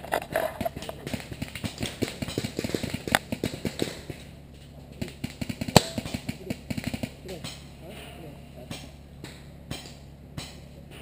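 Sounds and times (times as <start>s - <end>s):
paintball markers firing: 0.6s - 4.2s, 5.0s - 7.6s.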